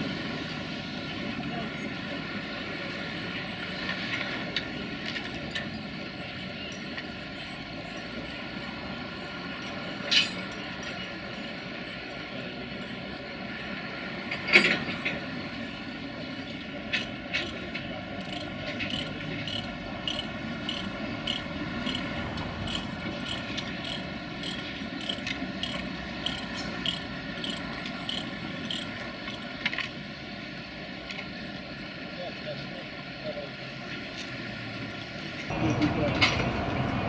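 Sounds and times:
steady regular ticking: 18.2 - 29.5.

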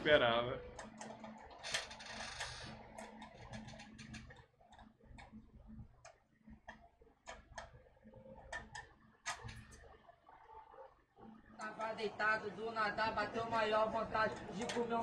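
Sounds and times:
faint clicks and taps: 0.6 - 11.9, 14.2 - 15.0.

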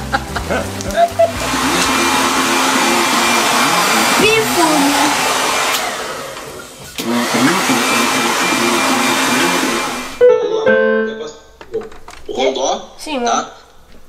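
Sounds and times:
hair dryer blowing: 0.0 - 10.2.

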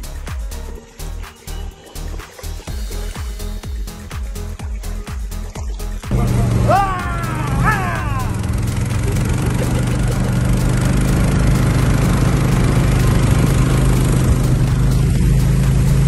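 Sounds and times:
boat engine droning: 6.1 - 16.0.

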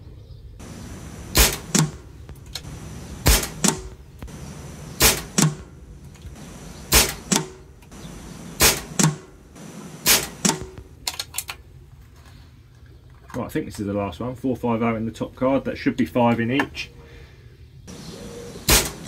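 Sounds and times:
air rifle shots cracking: 0.6 - 11.6, 18.6 - 19.0.

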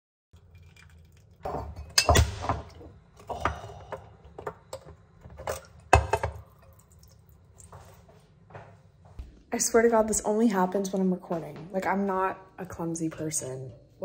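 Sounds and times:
water pouring into glass cup: 0.4 - 2.0
glass and ceramic clinking on counter: 1.5 - 6.4.

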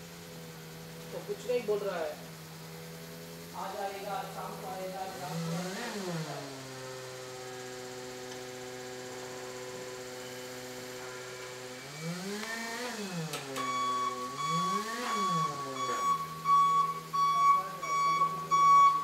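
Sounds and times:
forklift electric motor whine: 0.0 - 19.0
high warning tone: 13.0 - 19.0.

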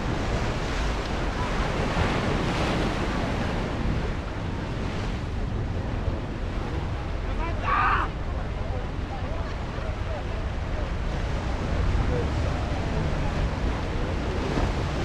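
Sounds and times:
ocean surf washing over rocks: 0.0 - 15.0
wind buffeting microphone: 0.0 - 15.0.

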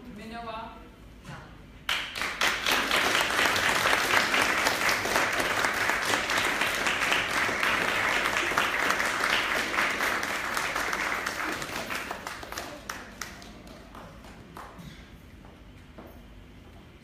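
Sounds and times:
audience applauding: 1.9 - 14.8.

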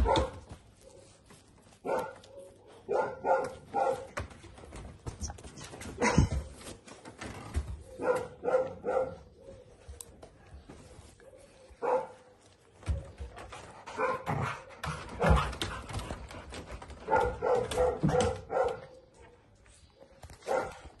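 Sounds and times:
dogs barking: 0.0 - 1.1, 1.8 - 4.3, 7.8 - 9.8, 11.2 - 12.4, 13.8 - 19.4, 20.4 - 21.0.

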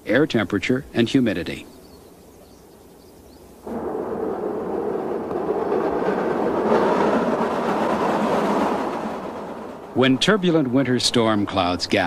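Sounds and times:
faint hiss: 0.0 - 12.0
train rumbling over bridge: 3.6 - 12.0.

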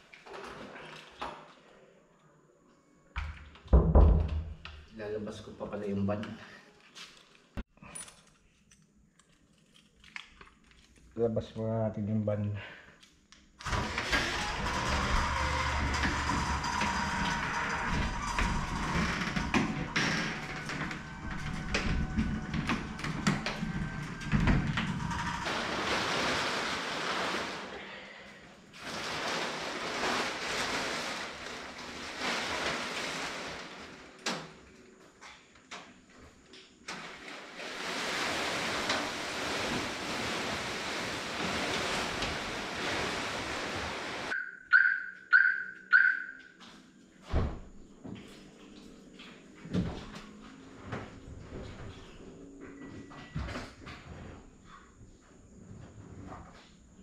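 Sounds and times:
fabric cover rustling: 28.8 - 34.2, 37.0 - 44.4
short electronic beeps: 44.4 - 46.4.

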